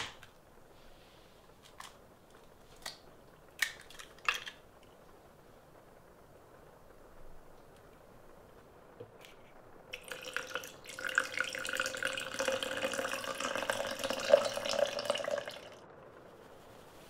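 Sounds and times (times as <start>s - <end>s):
water pouring into plastic cup: 9.9s - 15.8s.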